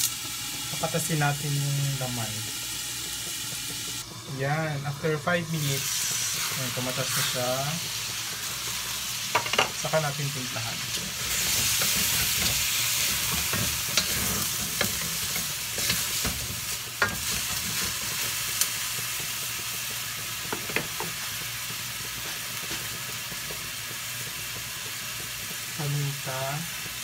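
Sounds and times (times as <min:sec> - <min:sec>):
meat sizzling in a wok: 0:00.0 - 0:27.0
wooden spatula knocking on pan: 0:09.3 - 0:09.8, 0:20.5 - 0:21.2.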